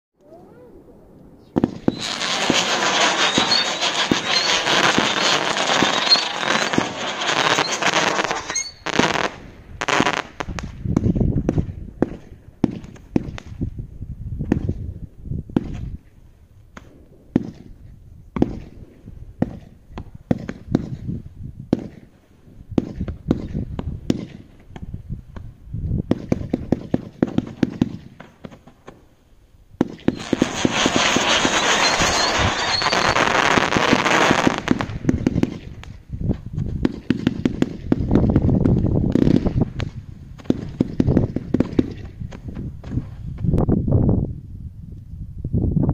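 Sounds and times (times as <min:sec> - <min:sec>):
firework hissing crackle: 0:01.6 - 0:10.8, 0:29.8 - 0:42.1
firework soft pops: 0:29.8 - 0:43.6.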